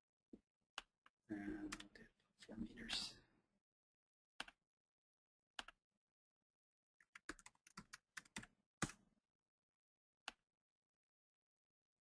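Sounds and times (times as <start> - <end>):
keyboard typing: 7.1 - 8.5.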